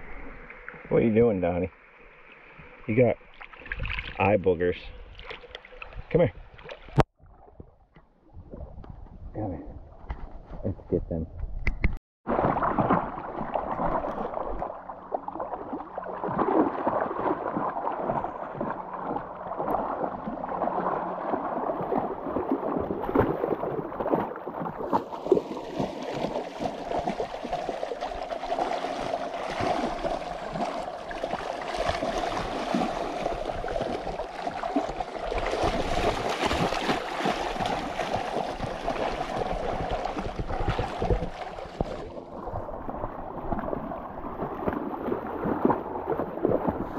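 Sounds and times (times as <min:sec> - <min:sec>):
splashing through shallow water: 0:02.3 - 0:04.3, 0:05.0 - 0:07.7, 0:12.3 - 0:46.9
rushing river water: 0:12.3 - 0:46.9.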